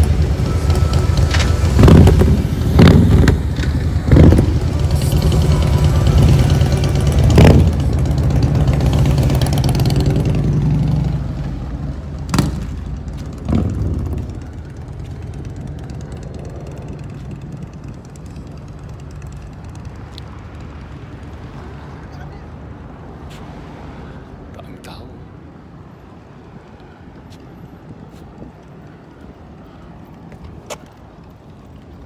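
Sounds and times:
engine running: 0.0s - 21.3s.

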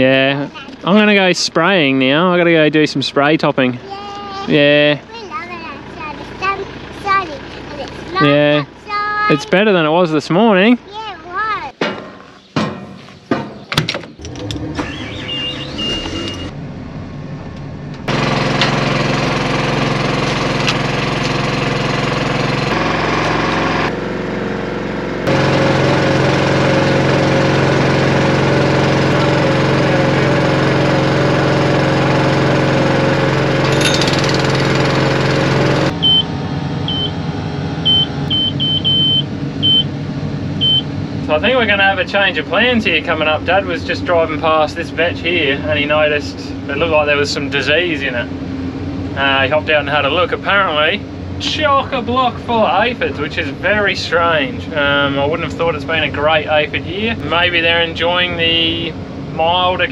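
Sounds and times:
engine running: 0.0s - 59.9s
knocks: 11.8s - 14.2s
short electronic beeps: 14.8s - 16.5s, 36.0s - 36.3s, 36.9s - 37.2s, 37.8s - 39.9s, 40.6s - 40.9s.

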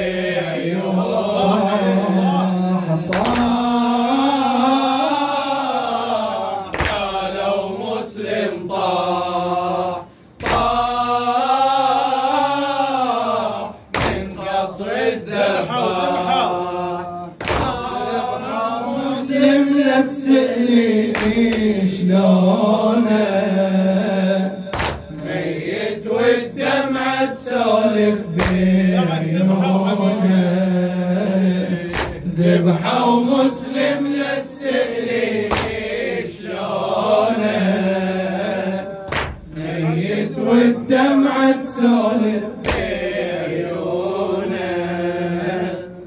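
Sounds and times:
man chanting a lament: 0.0s - 45.8s
hand beating the chest: 35.5s - 35.8s.

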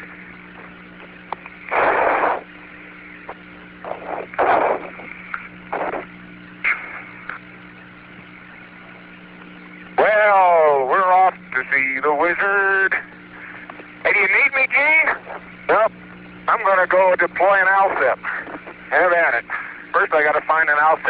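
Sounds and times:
radio hum and hiss: 0.0s - 21.0s
breathing over radio: 6.6s - 7.4s, 13.0s - 13.9s, 18.2s - 20.0s.

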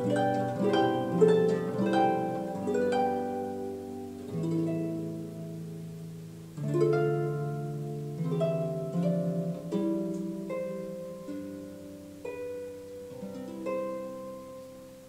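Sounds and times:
harp music: 0.0s - 15.0s.

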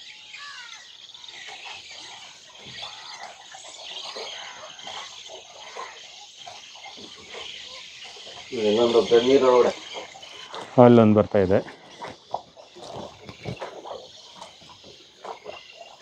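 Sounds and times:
birds chirping chorus: 0.0s - 16.0s.

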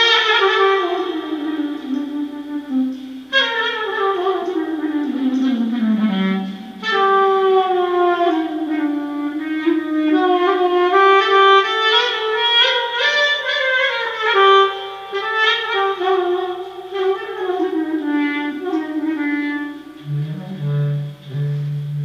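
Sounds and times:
solo clarinet improvising: 0.0s - 22.0s.

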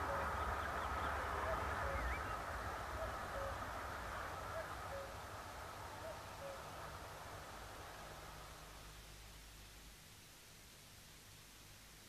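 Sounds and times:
cuckoo calling: 0.0s - 2.4s, 3.0s - 3.6s, 4.5s - 5.2s, 6.0s - 6.7s.

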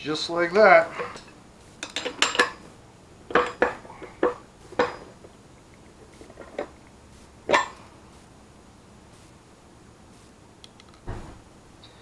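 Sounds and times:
pliers clinking on metal: 1.1s - 2.6s.

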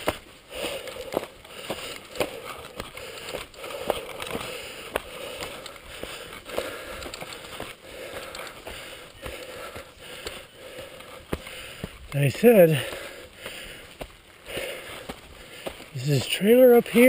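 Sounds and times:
tyres crunching over gravel: 0.0s - 17.0s.

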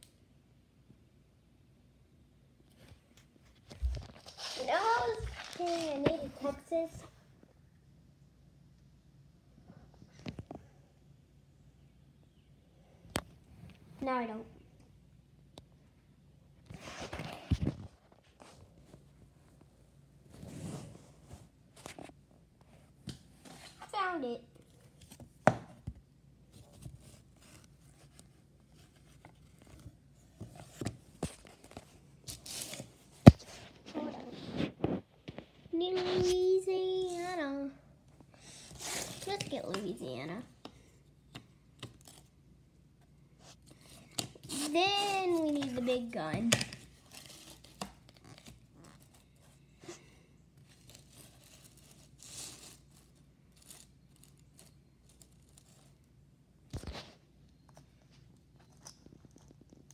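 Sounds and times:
puzzle pieces rustling: 4.2s - 6.7s.

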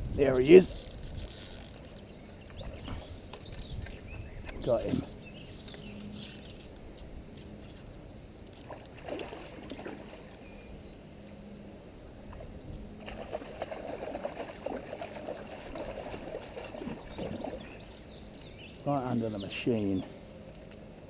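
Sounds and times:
fish splashing in water: 8.6s - 10.4s, 13.0s - 17.8s.

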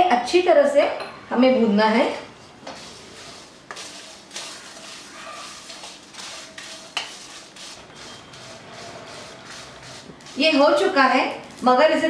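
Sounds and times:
wooden spatula scraping metal pan: 2.6s - 11.0s.

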